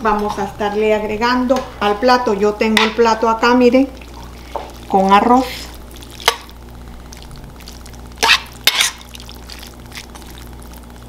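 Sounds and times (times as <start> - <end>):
metal spoon scraping a pan: 8.2 - 9.2.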